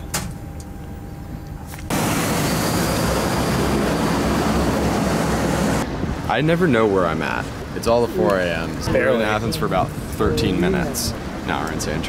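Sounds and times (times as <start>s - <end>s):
aircraft cabin hum: 0.0s - 6.2s
aircraft engines running: 0.0s - 12.0s.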